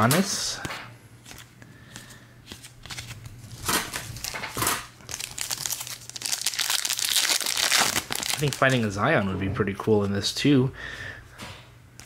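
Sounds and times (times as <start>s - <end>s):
foil wrapper crinkling: 2.5s - 9.0s.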